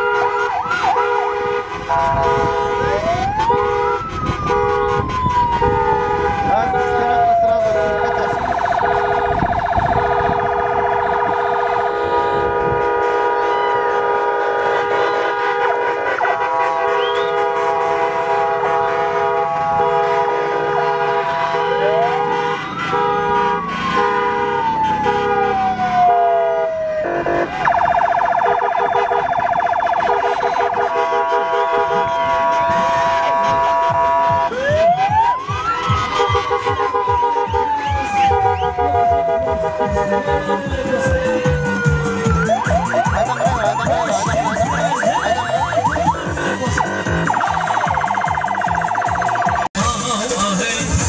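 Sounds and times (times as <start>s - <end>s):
synthesizer tones: 6.3s - 11.5s, 25.6s - 30.6s, 34.0s - 49.8s.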